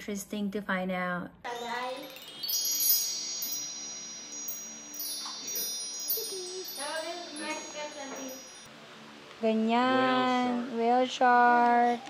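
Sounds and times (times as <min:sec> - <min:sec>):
chimes ringing: 0:01.5 - 0:08.7.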